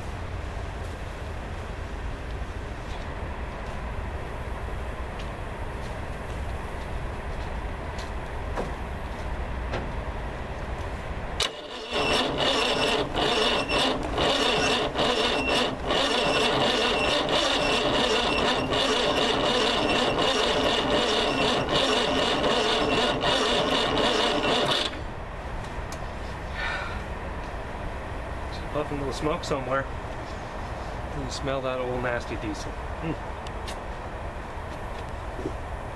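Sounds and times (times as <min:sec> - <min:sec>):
starter cranking diesel engine: 0:11.4 - 0:25.1.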